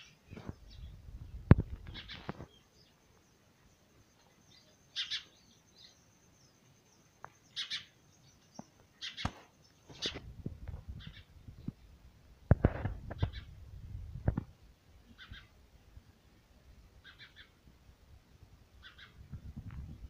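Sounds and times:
sparrows chirping: 0.0 - 10.2, 10.9 - 12.0, 13.1 - 13.6, 15.0 - 15.6, 17.0 - 17.6, 18.8 - 19.3.

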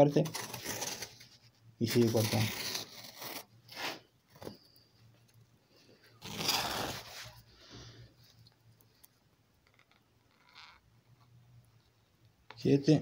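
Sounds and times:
leather scraping through a cutter: 6.2 - 7.4.

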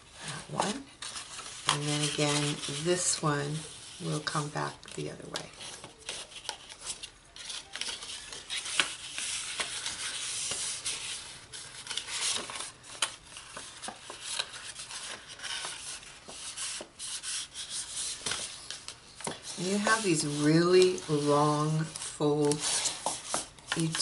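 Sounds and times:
paper crackling: 0.5 - 24.0
bone folder rubbing paper: 13.8 - 18.5, 19.4 - 24.0.

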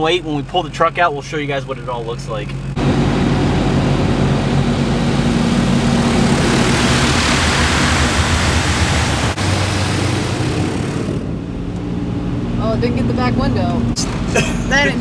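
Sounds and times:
truck engine idling hum: 0.0 - 15.0
water jets spraying on car: 2.8 - 11.4.

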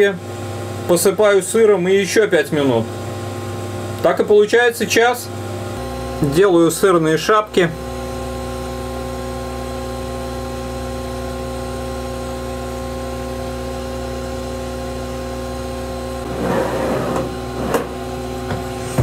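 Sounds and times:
oven fan humming: 0.0 - 19.0
metal tray scraping on rack: 16.2 - 18.0.

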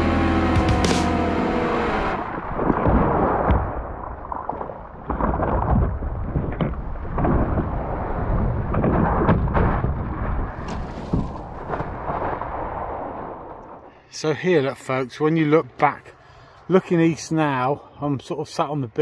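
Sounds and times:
water splashing around a board: 2.2 - 13.2.

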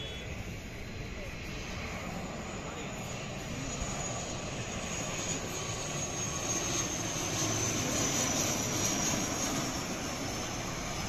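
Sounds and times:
high engine whine: 0.0 - 11.0
propeller airliner drone: 0.0 - 11.0.

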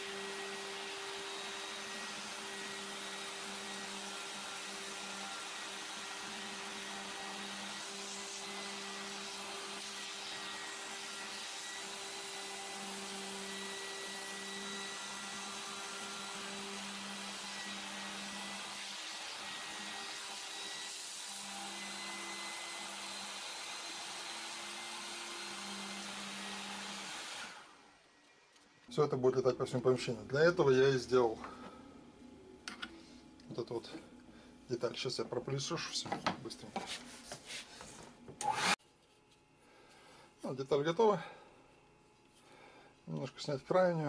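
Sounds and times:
router milling plastic: 0.0 - 27.7
vacuum hose noise: 36.8 - 38.8.

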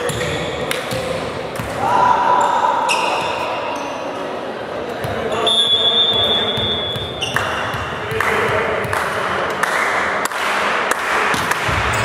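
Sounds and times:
referee's whistle: 5.4 - 7.4
volleyball hits: 9.8 - 12.0.

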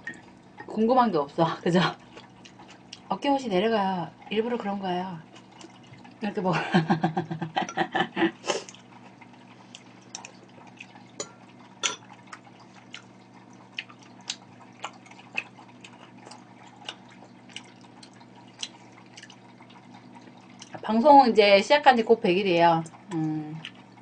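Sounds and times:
low steady hum: 0.0 - 24.0
person chewing: 2.0 - 3.1, 5.3 - 6.2, 8.5 - 20.7
wet mouth clicks and smacks: 13.8 - 19.4.

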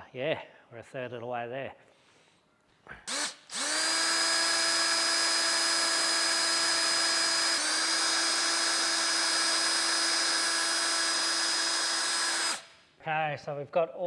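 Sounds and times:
cordless drill whining: 3.1 - 12.8.

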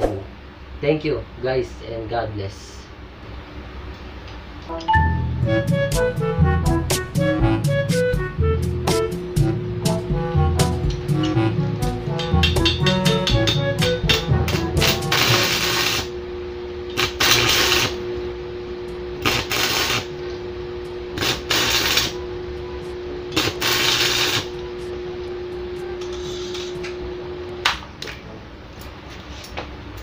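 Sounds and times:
steady electrical hum: 0.0 - 30.0
background music: 4.7 - 16.1
arc welder crackling: 8.6 - 27.9.

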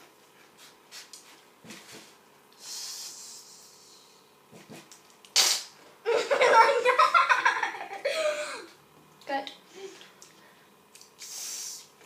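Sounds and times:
person hissing like a cat: 2.6 - 4.2, 5.4 - 5.7, 11.2 - 11.9.

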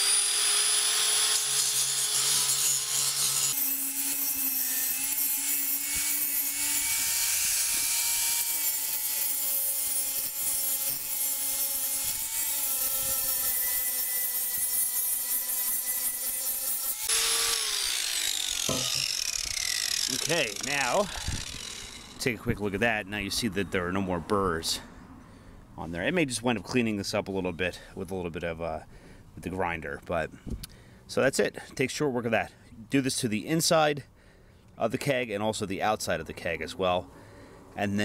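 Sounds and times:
angle grinder grinding metal: 0.0 - 22.8.

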